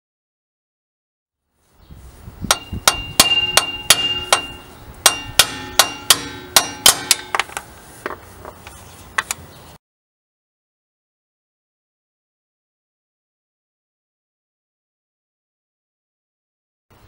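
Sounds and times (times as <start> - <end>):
sledgehammer striking metal: 2.5 - 7.6.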